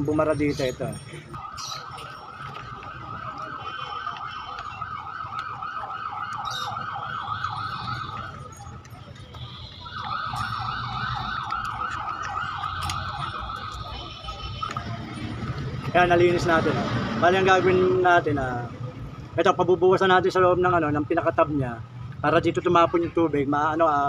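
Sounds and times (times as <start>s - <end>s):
siren yelping: 0.0s - 16.5s
siren wailing: 0.0s - 18.3s.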